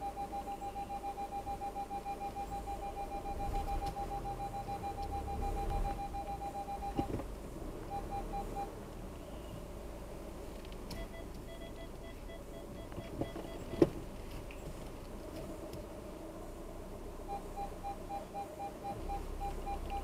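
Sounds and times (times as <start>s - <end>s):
lower-pitched beeps: 0.0s - 7.1s, 7.9s - 8.7s, 17.3s - 20.0s
parking sensor beeping: 0.0s - 7.2s, 7.8s - 9.5s, 10.9s - 13.9s, 17.2s - 20.0s.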